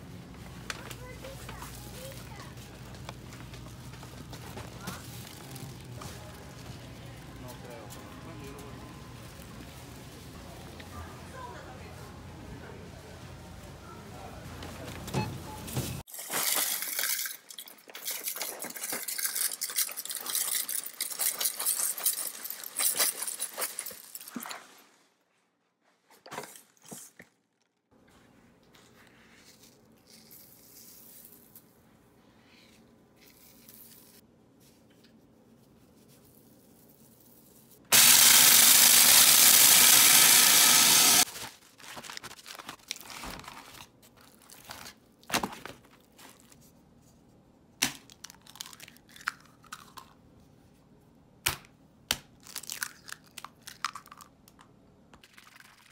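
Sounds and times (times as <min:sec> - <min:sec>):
handling rustles: 0:14.6 - 0:37.9, 0:41.2 - 0:47.3
food processor running: 0:37.9 - 0:41.3.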